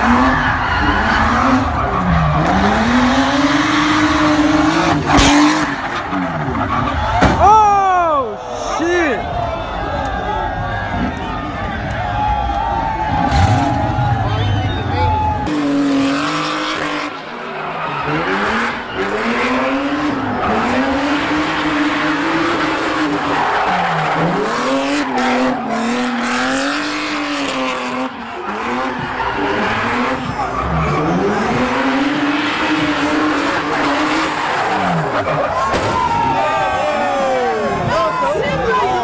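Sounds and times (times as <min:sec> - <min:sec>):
car engine revving high: 0:00.0 - 0:07.1, 0:15.3 - 0:35.7.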